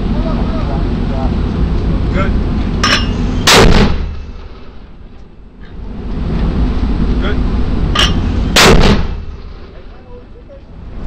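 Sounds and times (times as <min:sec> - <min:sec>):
low rumble: 0:00.0 - 0:11.0
sharp crack: 0:02.8 - 0:04.8, 0:08.0 - 0:09.8
heavy weapon booms: 0:03.4 - 0:04.7, 0:08.4 - 0:09.8.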